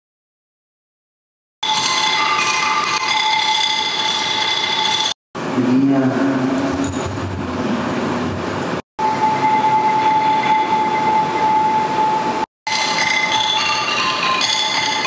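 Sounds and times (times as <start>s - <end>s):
chiming pitched tones: 1.6s - 5.2s, 9.0s - 15.0s
steady high tone: 1.6s - 5.8s, 9.0s - 15.0s
loud rumbling noise drone: 5.4s - 12.4s.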